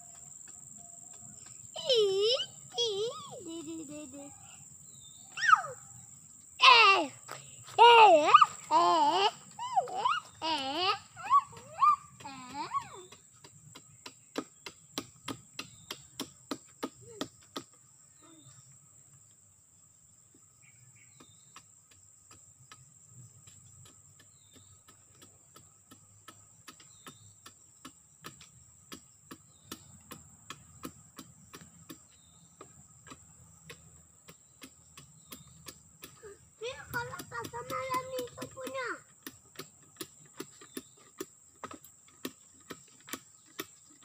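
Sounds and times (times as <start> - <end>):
high insect drone: 0.0 - 44.0
knife chopping wood: 11.6 - 17.7, 23.8 - 36.2.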